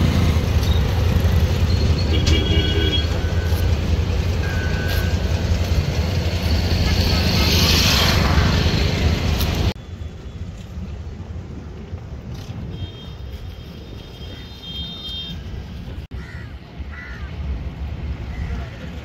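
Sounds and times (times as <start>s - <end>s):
diesel boat engines humming: 0.0s - 9.8s.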